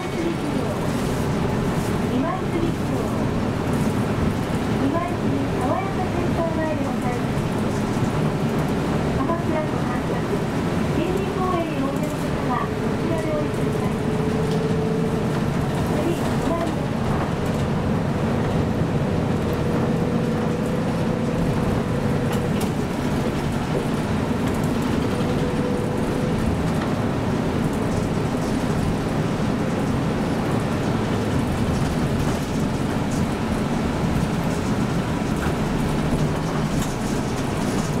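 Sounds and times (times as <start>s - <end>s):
bus engine running: 0.0s - 38.0s
cabin and road noise: 0.0s - 38.0s.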